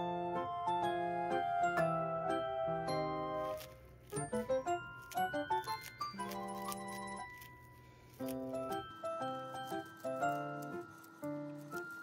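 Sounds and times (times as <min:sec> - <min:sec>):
light chiming instrumental tune: 0:04.2 - 0:12.0.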